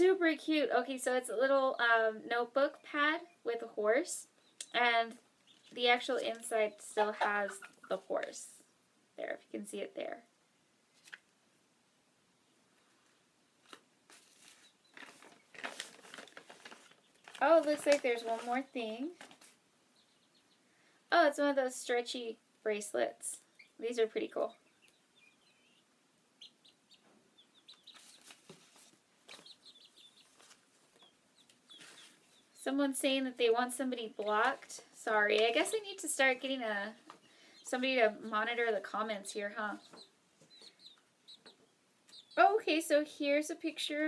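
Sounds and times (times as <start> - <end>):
chickens chirping and clucking: 4.3 - 8.1, 23.3 - 23.8, 24.4 - 32.6, 37.0 - 42.6
paper rustling: 10.9 - 11.3, 13.6 - 19.6, 27.9 - 29.6, 30.2 - 31.0.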